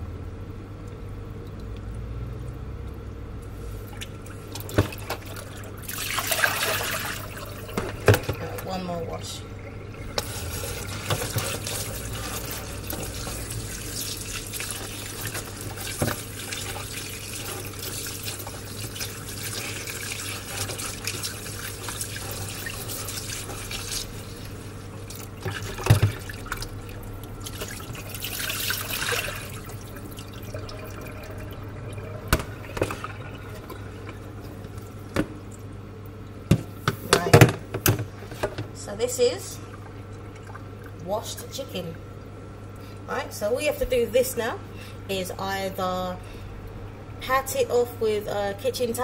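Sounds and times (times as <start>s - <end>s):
tap running into bowl: 7.7s - 8.7s, 32.2s - 33.8s.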